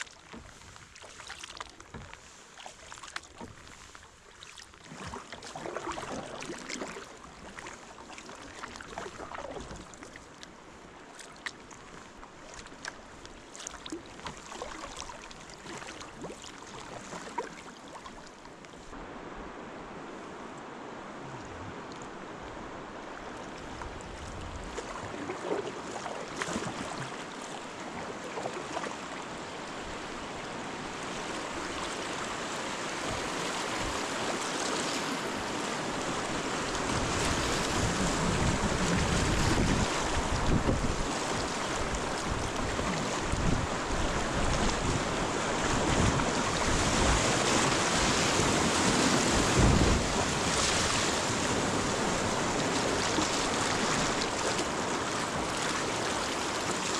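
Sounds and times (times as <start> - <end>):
river water rushing: 18.9 - 56.9.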